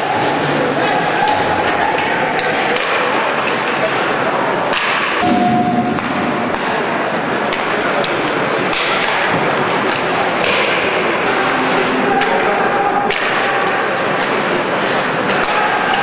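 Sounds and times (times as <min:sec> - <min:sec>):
arena echo: 0:00.0 - 0:16.0
sticks and puck knocking: 0:05.8 - 0:10.8
skates scraping ice: 0:11.2 - 0:16.0.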